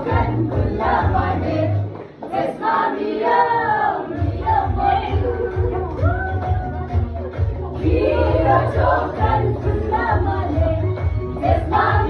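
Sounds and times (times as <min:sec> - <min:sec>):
voices singing together: 0:00.0 - 0:12.0
pulsing bass beat: 0:04.2 - 0:12.0.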